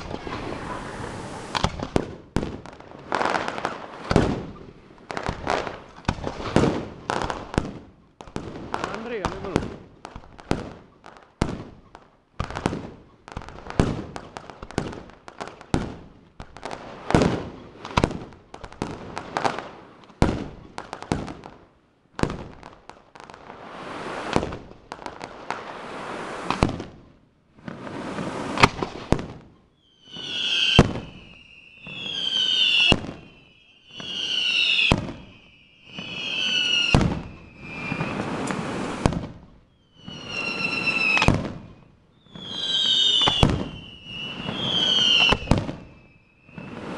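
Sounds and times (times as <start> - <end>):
shrill firework whistles: 0.0 - 1.9, 23.6 - 24.4, 29.7 - 46.9
fireworks bangs and crackles: 0.0 - 46.9.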